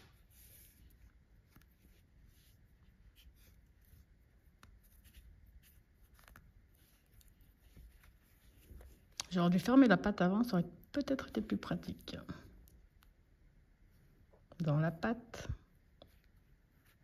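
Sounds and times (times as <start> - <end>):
yarn rustling through fabric: 0.0 - 10.0.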